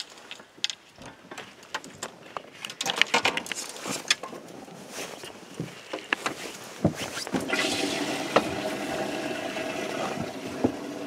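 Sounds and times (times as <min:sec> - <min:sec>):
gear handling clicks and rustles: 0:00.0 - 0:07.3.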